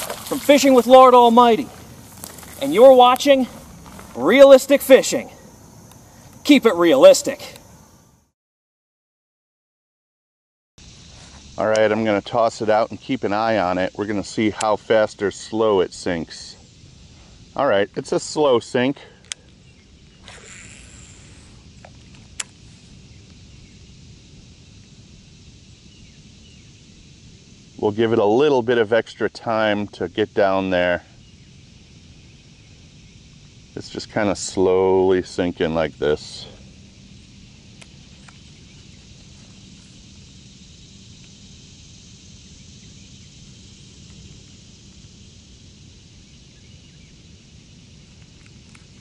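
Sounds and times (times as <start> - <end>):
steady low rumble: 0.0 - 6.4
faint high hiss: 0.0 - 8.2, 10.8 - 49.0
sharp click: 11.7 - 11.9
faint chirps: 15.3 - 28.0, 30.0 - 49.0
faint bird chirps: 25.9 - 27.0, 46.2 - 47.2.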